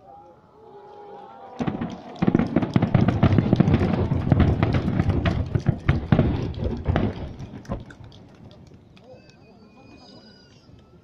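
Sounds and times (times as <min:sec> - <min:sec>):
fireworks bangs and crackles: 0:01.6 - 0:09.0.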